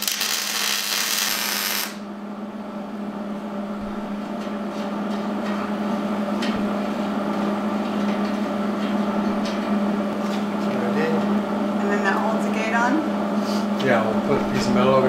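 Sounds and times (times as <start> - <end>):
welder arc crackling and hissing: 0.0 - 2.1
steady hum: 0.0 - 15.0.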